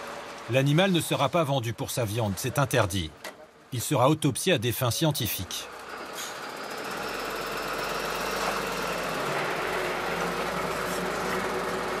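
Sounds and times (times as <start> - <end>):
truck engine running: 5.6 - 12.0.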